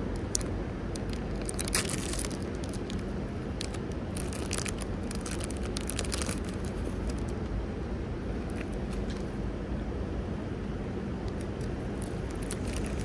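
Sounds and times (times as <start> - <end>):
plastic bag tearing and crinkling: 0.2 - 7.3, 11.6 - 13.0.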